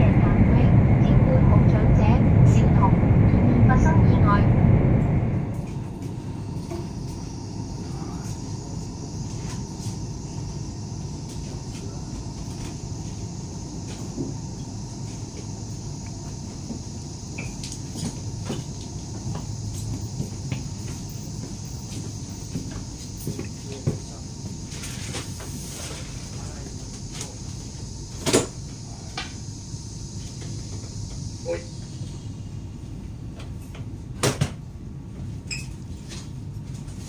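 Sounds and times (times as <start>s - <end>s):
train cabin rumble: 0.0s - 35.5s
hiss: 6.6s - 32.8s.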